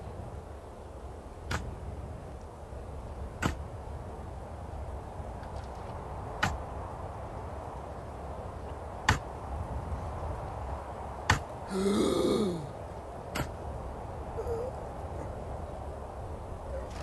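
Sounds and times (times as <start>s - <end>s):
shovel striking hard ground: 1.5s - 1.7s, 3.4s - 3.6s, 6.4s - 6.6s, 13.4s - 13.6s
person groaning: 11.7s - 12.7s.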